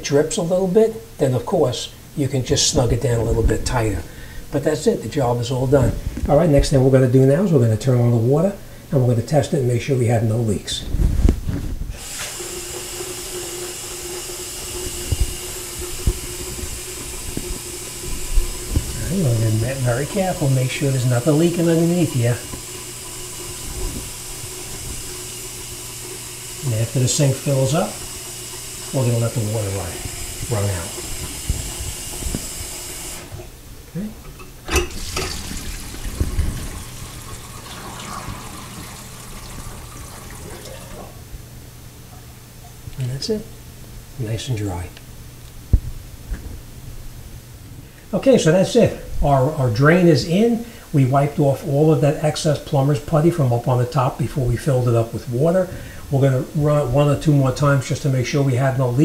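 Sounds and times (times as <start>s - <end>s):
steady hum: 0.0s - 59.0s
water pouring into sink: 12.0s - 33.3s, 34.8s - 41.2s.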